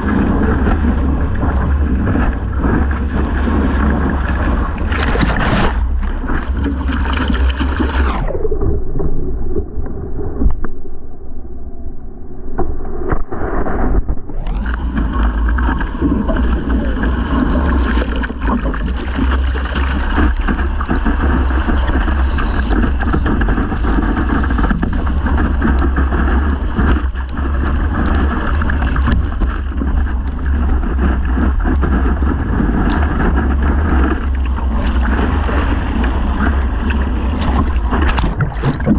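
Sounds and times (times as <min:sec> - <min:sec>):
sharp water splashes: 0:00.0 - 0:08.0, 0:34.2 - 0:38.9
wind buffeting microphone: 0:00.0 - 0:08.2, 0:14.1 - 0:38.9
water rushing along board: 0:00.0 - 0:09.7, 0:14.2 - 0:38.9.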